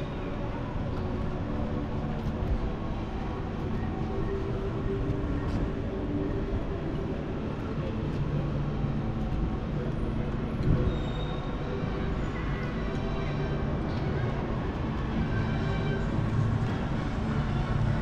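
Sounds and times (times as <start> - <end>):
low city street rumble: 0.0 - 18.0.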